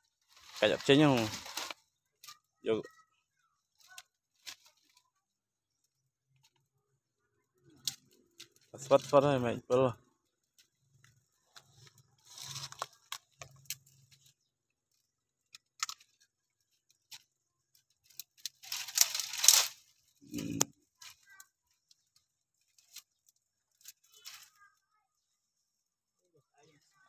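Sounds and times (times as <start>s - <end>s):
twigs and leaves crackling: 0.0s - 27.0s.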